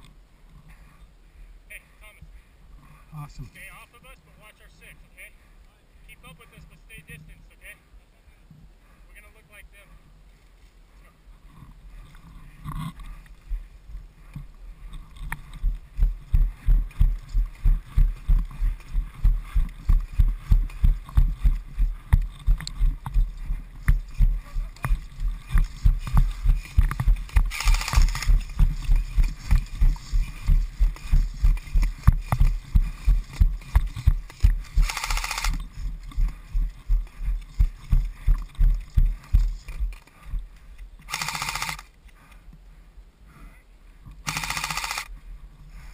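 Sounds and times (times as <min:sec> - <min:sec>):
running footsteps on dirt: 0:11.4 - 0:41.8.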